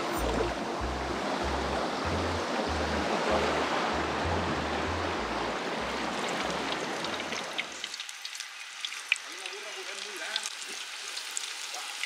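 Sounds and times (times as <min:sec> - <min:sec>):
background music with bass line: 0:00.0 - 0:07.3.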